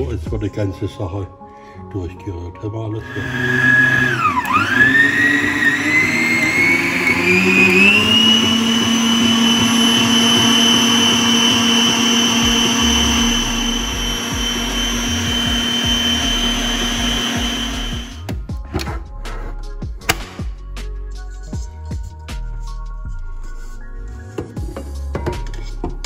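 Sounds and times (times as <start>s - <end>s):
stand mixer whisking batter: 3.0s - 18.2s.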